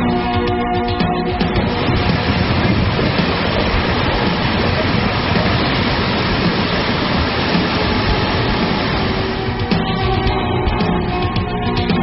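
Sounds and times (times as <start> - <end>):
floodwater rushing: 1.5 - 9.7.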